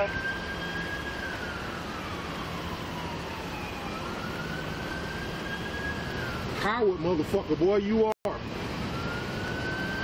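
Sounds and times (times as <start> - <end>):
police siren wailing: 0.0 - 7.8, 8.4 - 10.0.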